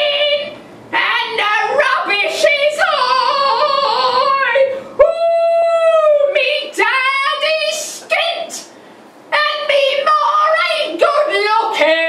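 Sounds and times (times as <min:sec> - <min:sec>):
woman singing opera: 0:00.0 - 0:08.3.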